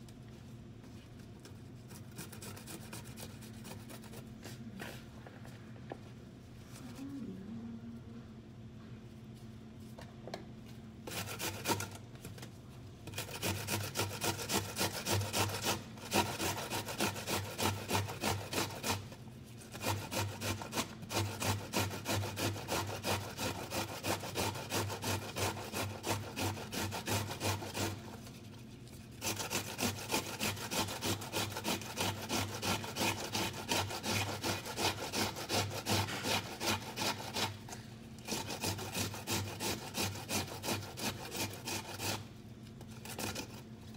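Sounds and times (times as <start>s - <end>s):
vegetables rasping on a grater: 11.1s - 12.4s, 13.0s - 43.7s.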